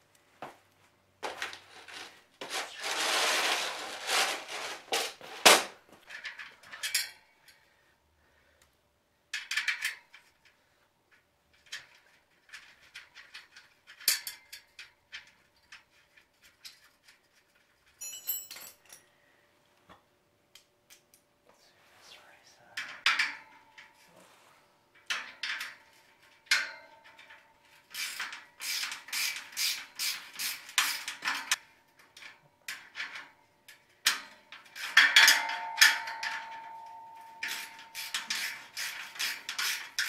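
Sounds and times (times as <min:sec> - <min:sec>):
metal ramps clanking and scraping: 0:01.3 - 0:07.1
metal rasping: 0:37.4 - 0:40.0.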